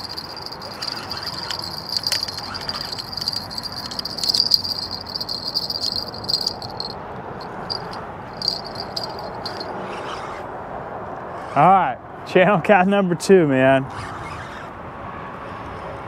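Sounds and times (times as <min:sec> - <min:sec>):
fishing reel whirring and clicking: 0:00.0 - 0:07.0, 0:07.7 - 0:09.6.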